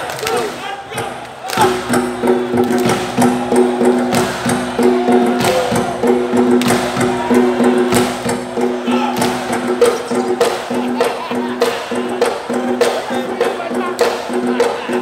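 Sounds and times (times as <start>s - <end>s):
low repeating drum pattern: 0.0s - 15.0s
hand drumming: 1.0s - 15.0s.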